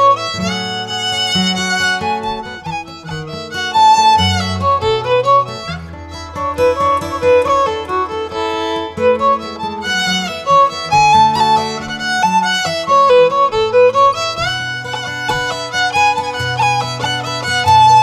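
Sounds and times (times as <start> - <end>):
instrumental background music: 0.0 - 18.0.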